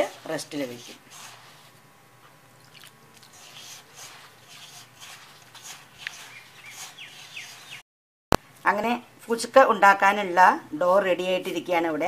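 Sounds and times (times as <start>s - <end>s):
hand mixing dough in steel bowl: 0.0s - 7.8s.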